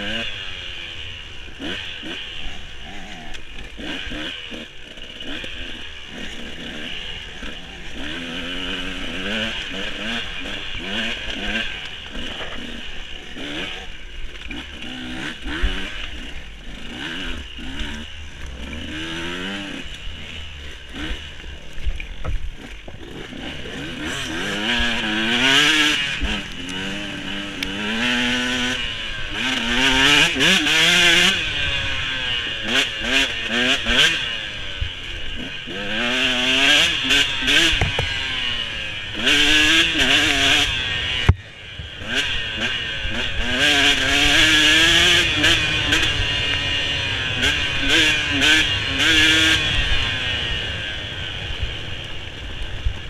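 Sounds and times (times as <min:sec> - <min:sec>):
dirt bike engine revving: 0:00.0 - 0:53.0
bike knocks and rattles: 0:37.6 - 0:38.2.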